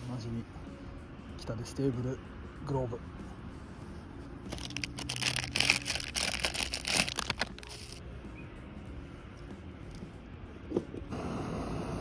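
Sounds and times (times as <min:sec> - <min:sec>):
paper crumpling: 0:04.5 - 0:08.0.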